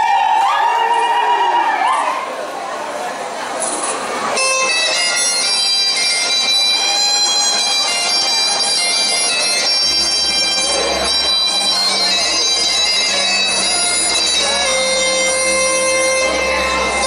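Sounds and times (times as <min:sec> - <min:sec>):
bagpipe-like reed melody: 0:04.3 - 0:17.0.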